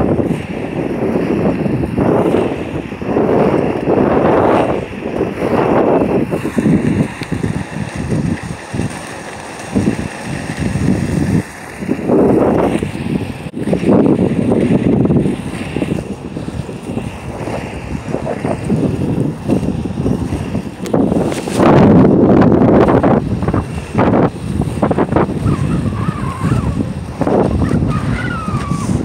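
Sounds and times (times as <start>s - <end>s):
skate wheels rolling on asphalt: 0.0s - 29.0s
wind buffeting microphone: 0.0s - 29.0s.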